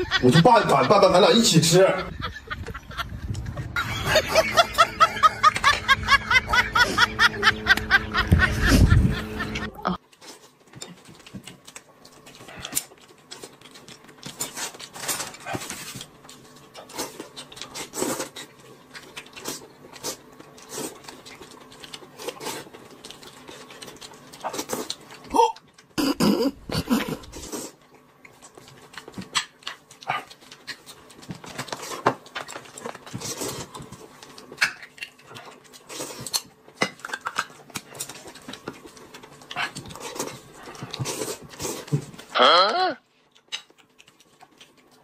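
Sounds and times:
rapid rhythmic laughter: 0.0 - 10.0.

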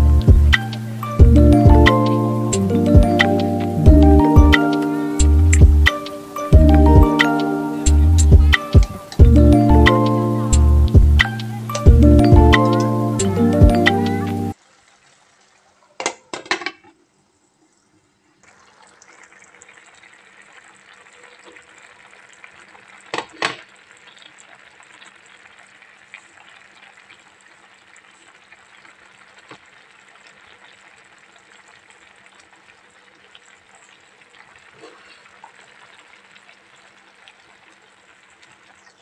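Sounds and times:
soup boiling in a pan: 14.5 - 39.0.

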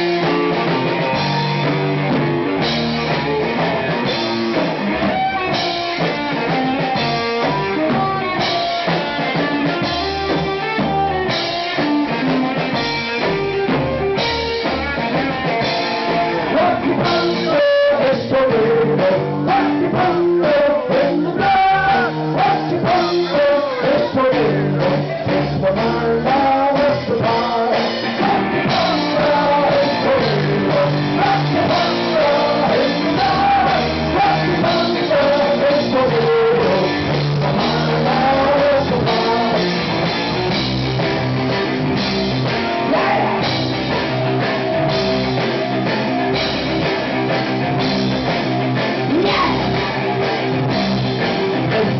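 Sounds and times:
live funky rock band: 0.0 - 51.9
person singing: 15.7 - 40.0, 42.5 - 46.4, 49.0 - 50.3.

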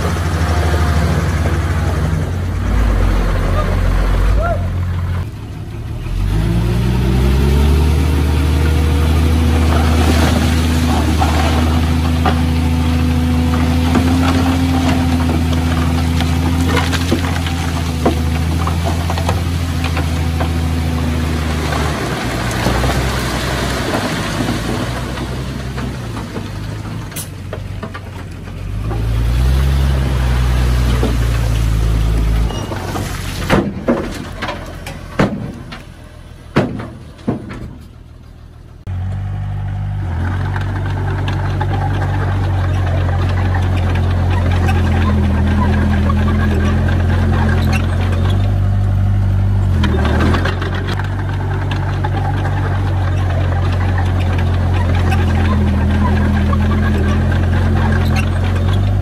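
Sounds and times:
diesel engine revving: 0.0 - 59.0
sharp knocks: 36.6 - 37.8.

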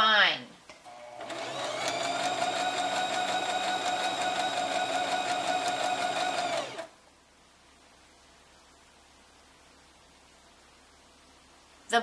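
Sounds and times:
electric sewing machine stitching: 0.9 - 6.9.

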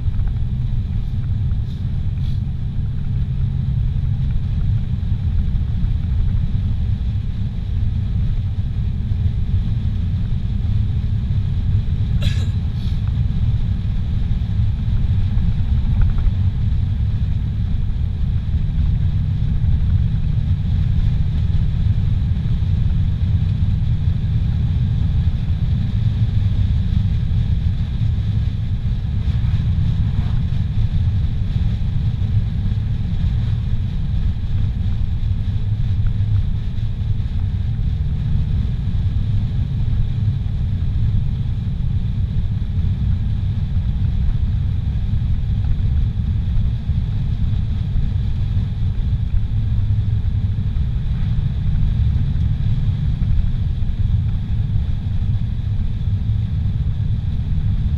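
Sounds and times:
car cabin road rumble: 0.0 - 57.9.

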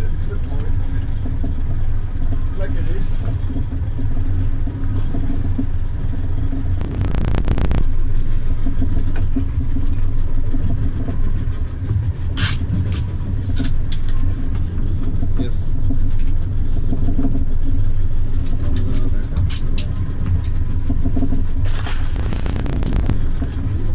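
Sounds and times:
engine rumbling: 6.8 - 8.4, 21.8 - 23.9.

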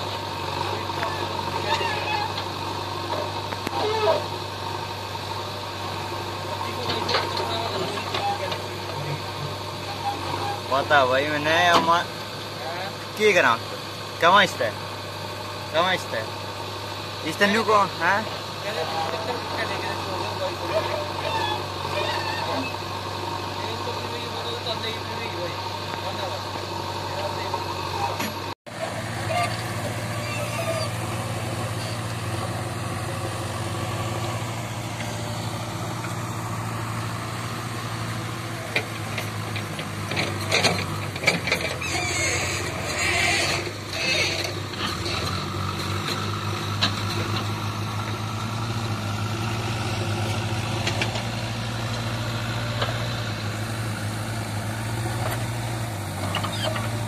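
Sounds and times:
backhoe diesel engine running: 0.0 - 57.0
knocks and clanks: 38.7 - 46.2.

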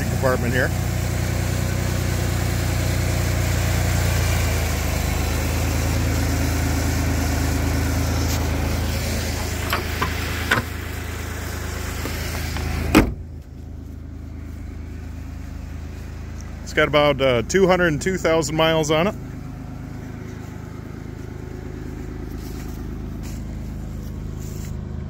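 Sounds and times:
car engine idling: 0.0 - 25.0
car hood slamming shut: 9.6 - 10.8, 12.0 - 13.3.

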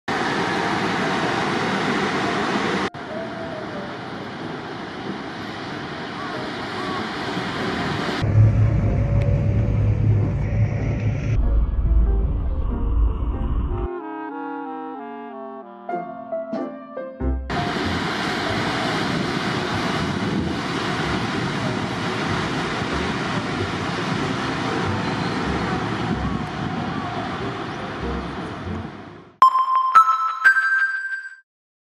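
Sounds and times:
city traffic noise: 0.1 - 11.4, 17.5 - 29.4
train passing on elevated railway: 0.1 - 13.9, 17.5 - 29.4
wind buffeting microphone: 4.9 - 11.4, 17.5 - 29.0.

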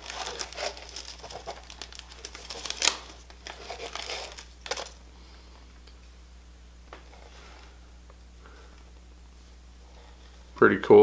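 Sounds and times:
plastic packaging crinkling: 0.0 - 5.0.

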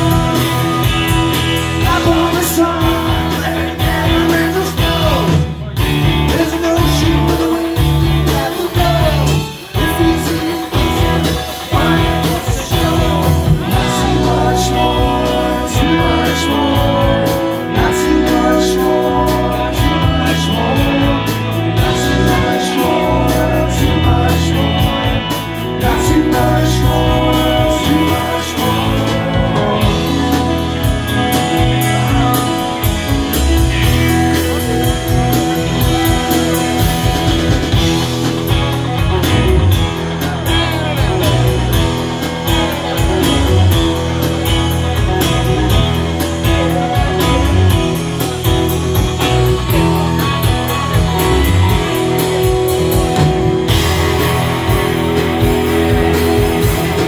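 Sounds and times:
person singing: 0.0 - 44.2
bass guitar: 0.0 - 57.0
drums: 0.0 - 57.0
electric guitar: 0.0 - 57.0.

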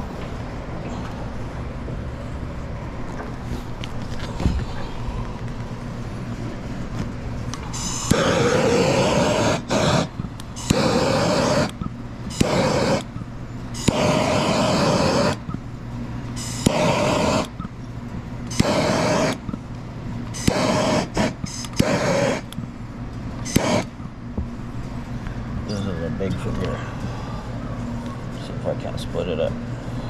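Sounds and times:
torch flame hissing: 7.7 - 13.2, 13.8 - 15.5, 16.4 - 17.6, 18.5 - 19.5, 20.3 - 22.6, 23.4 - 24.0.

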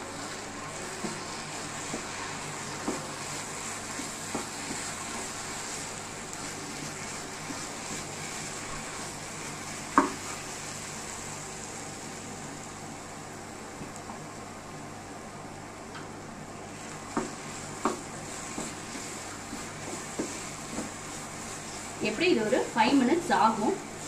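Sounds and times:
food sizzling in a pan: 0.0 - 13.9, 16.2 - 24.0
spatula knocking on pan: 9.9 - 10.2, 17.1 - 18.8.

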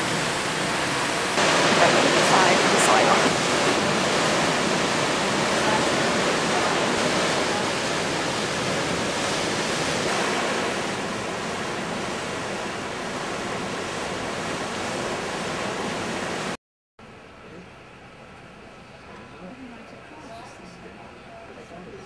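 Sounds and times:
water rushing: 0.0 - 16.6
wind: 0.0 - 22.0.

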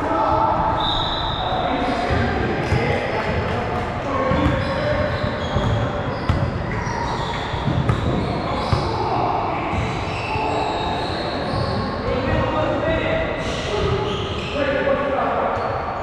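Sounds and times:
shoe squeaks: 0.7 - 2.0, 4.4 - 12.4, 13.4 - 14.8.

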